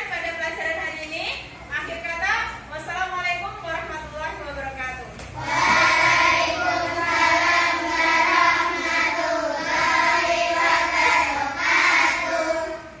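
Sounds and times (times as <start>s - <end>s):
children singing in unison: 5.4s - 13.0s.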